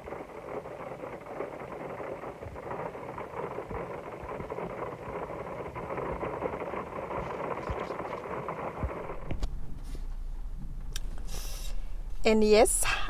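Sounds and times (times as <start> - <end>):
rain on a car windscreen: 0.0 - 10.1.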